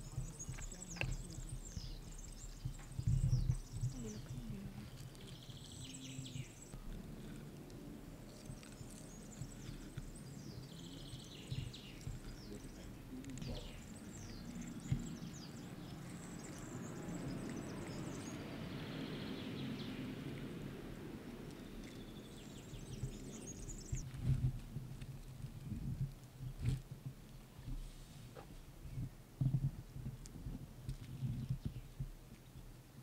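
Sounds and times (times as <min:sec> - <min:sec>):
low steady rumble: 0:00.0 - 0:33.0
small birds chirping: 0:00.0 - 0:33.0.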